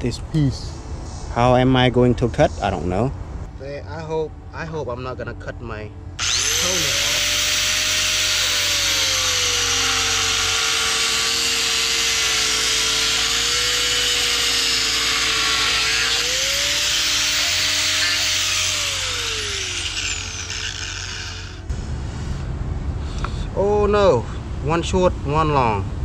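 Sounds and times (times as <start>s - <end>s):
angle grinder whining: 6.2s - 21.7s.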